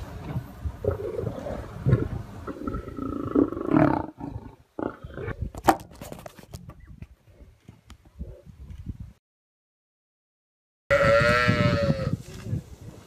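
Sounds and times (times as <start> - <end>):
lions growling: 0.8 - 5.5.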